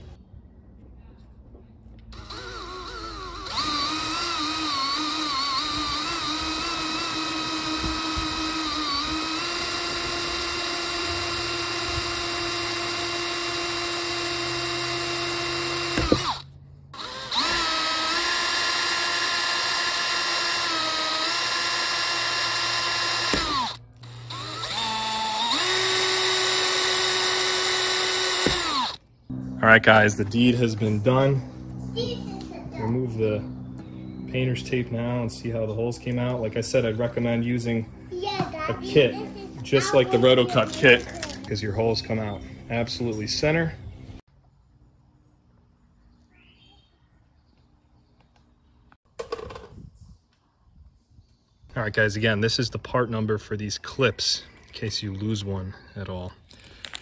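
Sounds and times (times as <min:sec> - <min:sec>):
cordless drill whine: 0:02.1 - 0:16.4, 0:17.0 - 0:29.0.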